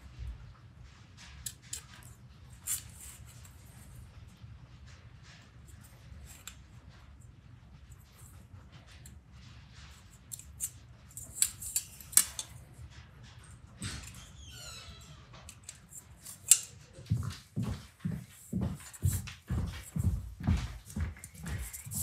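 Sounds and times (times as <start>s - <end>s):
small clicks and scrapes: 0.8s - 17.1s
metal scriber scratching metal: 10.3s - 12.6s.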